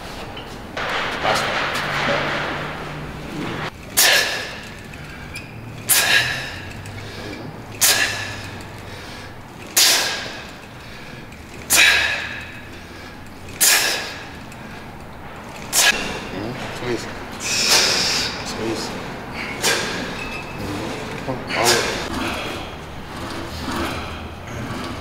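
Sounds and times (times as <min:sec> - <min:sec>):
sharp forceful exhales: 0:04.0 - 0:14.9, 0:17.4 - 0:18.5, 0:19.3 - 0:22.7.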